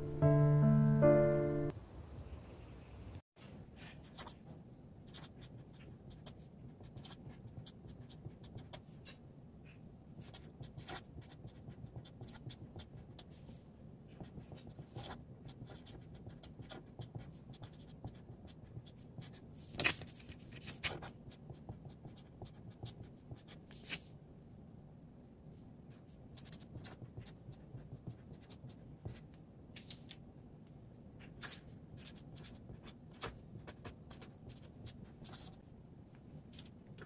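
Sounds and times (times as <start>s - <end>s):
marker pen scratching on paper: 3.8s - 4.4s, 5.1s - 24.1s, 25.9s - 29.2s, 31.2s - 35.7s.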